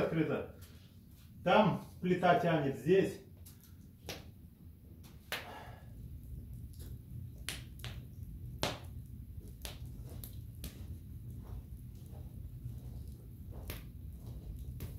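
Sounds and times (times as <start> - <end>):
stove fire crackling: 0.0 - 14.9
low steady rumble: 3.5 - 14.9.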